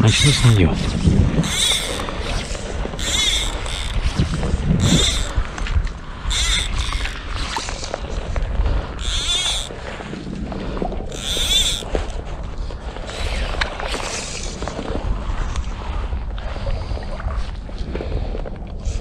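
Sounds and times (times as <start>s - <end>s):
high squeaky rasps: 0.0s - 5.4s, 6.3s - 7.8s, 9.0s - 9.7s, 11.2s - 11.9s
wind rumbling on microphone: 0.0s - 19.0s.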